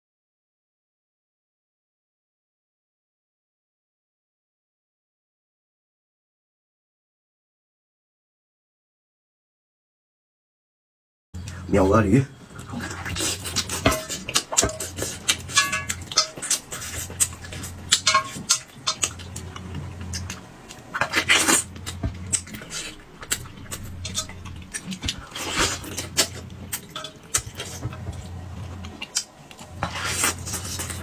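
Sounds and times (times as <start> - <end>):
low hum: 11.4 - 31.0
man chewing and sucking food: 12.5 - 31.0.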